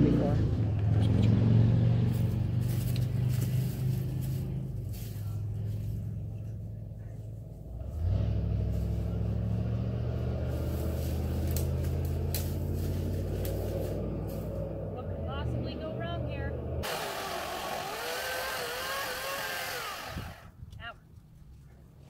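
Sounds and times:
motor running drone: 0:16.8 - 0:20.5.

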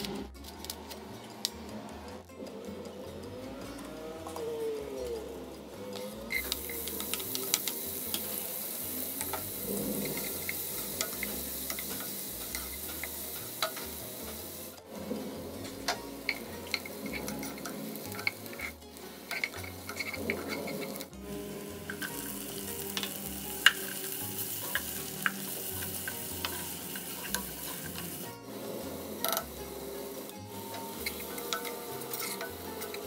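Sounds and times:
onions sizzling in hot oil: 0:06.0 - 0:33.0
wooden spoon scraping a pot: 0:15.0 - 0:23.1, 0:31.0 - 0:33.0.

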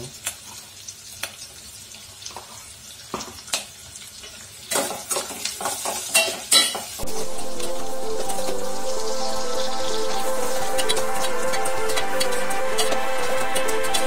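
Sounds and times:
onions frying in oil: 0:00.0 - 0:14.0
background music: 0:07.0 - 0:14.0.

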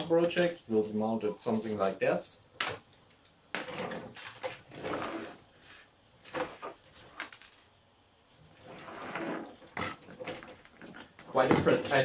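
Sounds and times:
plastic rubbing and sliding: 0:03.6 - 0:07.7, 0:08.4 - 0:12.0.

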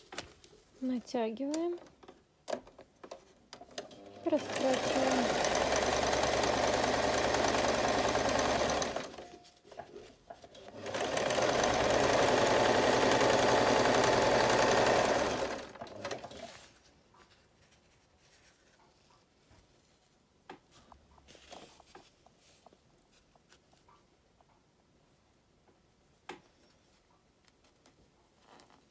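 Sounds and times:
electric sewing machine stitching: 0:03.7 - 0:09.4, 0:10.4 - 0:16.6.

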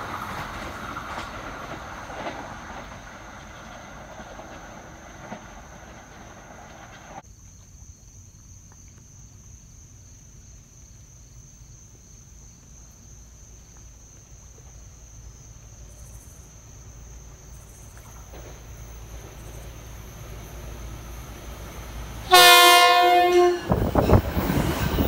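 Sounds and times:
low train rumble: 0:00.0 - 0:07.2, 0:13.2 - 0:25.0
high-pitched insect chorus: 0:00.1 - 0:25.0.

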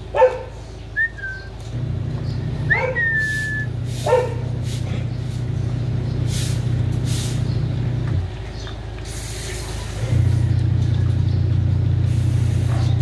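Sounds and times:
steady low motor hum: 0:00.0 - 0:13.0
dog barking: 0:00.1 - 0:00.6, 0:02.7 - 0:03.2, 0:04.0 - 0:04.6, 0:12.6 - 0:13.0
dog whining: 0:02.6 - 0:04.4.

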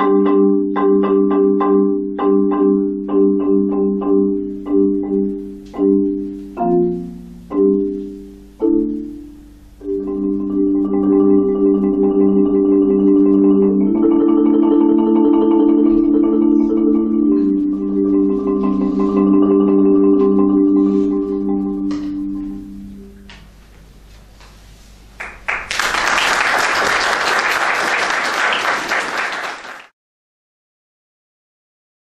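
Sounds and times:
marimba low chords: 0:00.0 - 0:23.6
audience applause: 0:25.2 - 0:29.9.

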